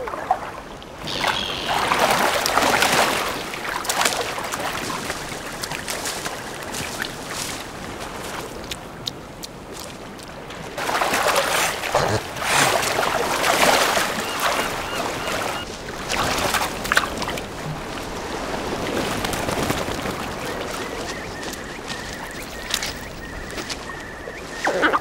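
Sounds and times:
otter splashing in water: 1.0s - 24.0s
otter chewing clicks: 8.4s - 10.4s, 11.5s - 13.1s.

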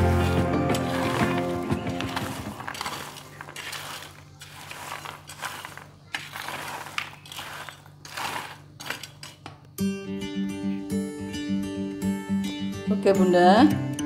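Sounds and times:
metal spatula scraping fried beans: 0.0s - 9.4s.

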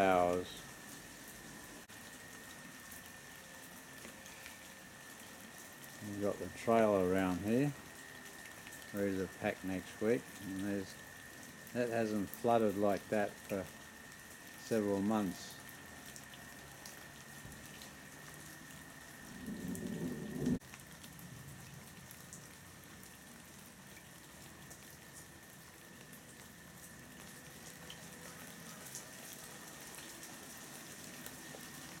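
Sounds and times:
rain pattering into floodwater: 0.0s - 32.0s
low rumble: 19.3s - 20.6s.

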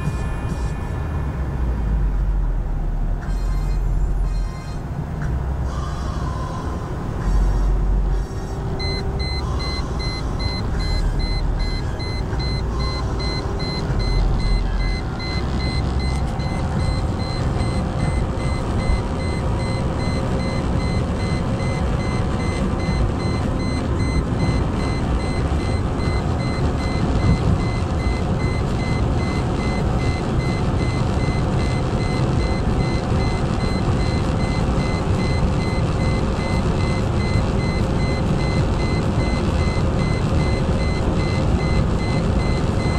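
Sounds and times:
car engine working hard: 0.0s - 42.9s
wind and tyre noise: 6.6s - 42.9s
fast electronic beeps: 8.8s - 42.9s.

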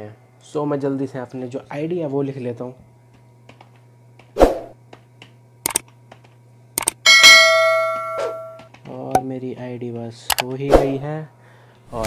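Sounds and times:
sharp clicks: 5.6s - 7.0s, 10.3s - 10.5s
bell ding: 7.1s - 8.6s.

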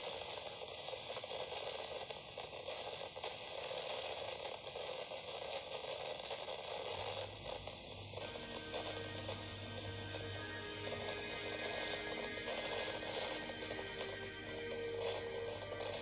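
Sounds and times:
radio static hiss: 0.0s - 16.0s
low hum: 7.0s - 16.0s.

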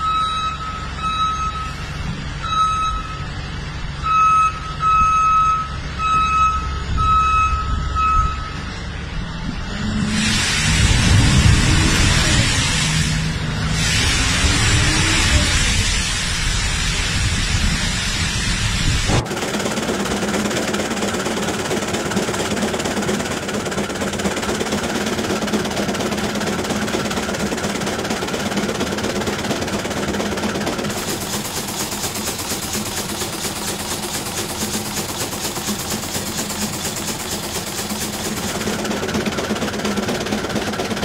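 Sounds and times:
diesel engine drone: 0.0s - 41.0s
chopper rushing: 9.4s - 17.8s, 18.4s - 41.0s.

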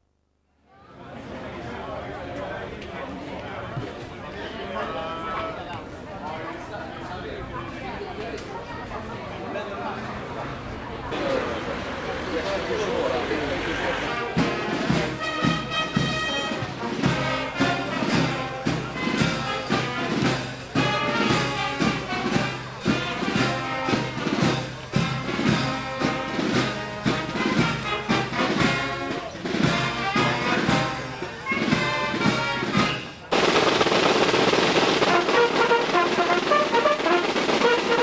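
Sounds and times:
brass band playing a march: 11.2s - 38.0s.

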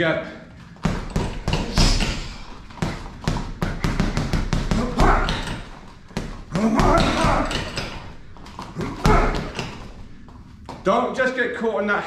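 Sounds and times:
gloves punching a heavy bag: 0.8s - 10.0s.

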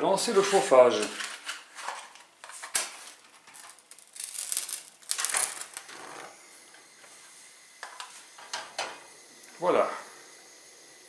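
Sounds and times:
gas burner hissing: 3.1s - 11.0s.

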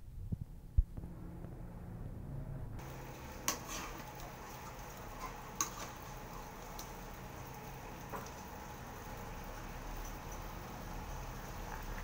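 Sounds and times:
pot boiling hiss: 2.8s - 12.0s.

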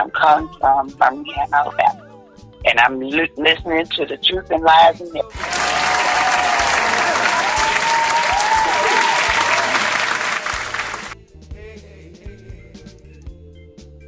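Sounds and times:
background music: 0.0s - 14.0s
applause with cheers: 5.3s - 11.2s.

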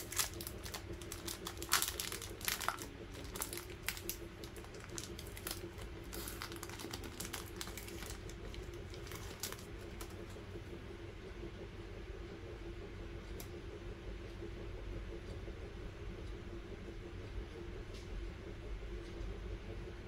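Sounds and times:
wrapper crinkling: 0.0s - 10.3s.

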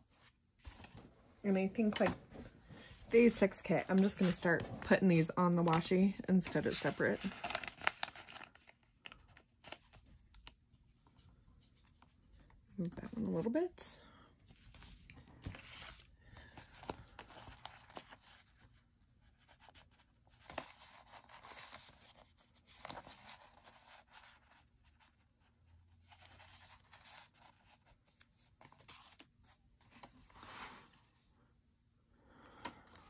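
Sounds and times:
paper rustling and scraping: 2.9s - 10.0s, 14.6s - 25.2s, 25.9s - 31.2s.

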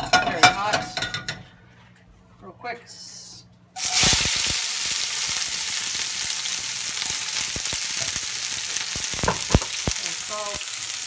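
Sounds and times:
vegetables sizzling in oil: 3.8s - 11.0s.

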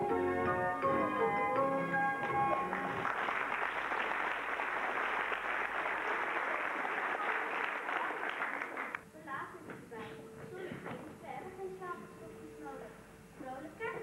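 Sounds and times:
song: 0.0s - 3.1s
audience applauding: 2.2s - 9.0s.

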